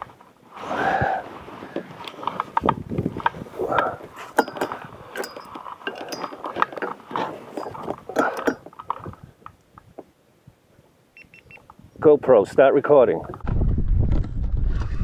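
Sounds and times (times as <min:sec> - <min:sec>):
fishing rod and reel knocking: 0:02.5 - 0:09.0.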